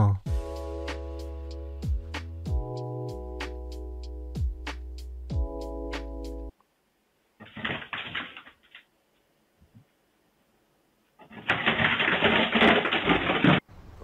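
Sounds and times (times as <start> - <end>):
dogs scrambling on wooden floor: 7.4 - 8.8, 11.2 - 13.6.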